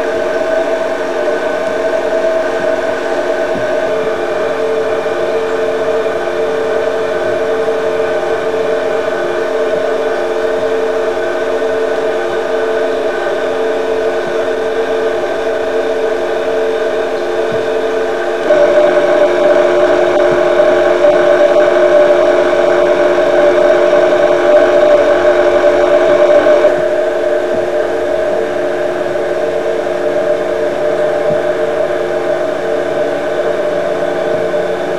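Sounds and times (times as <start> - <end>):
motors humming: 0.0 - 34.9.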